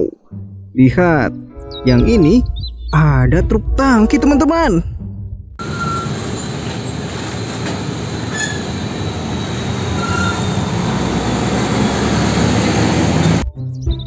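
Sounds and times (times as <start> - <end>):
trucks driving past: 5.6 - 13.5.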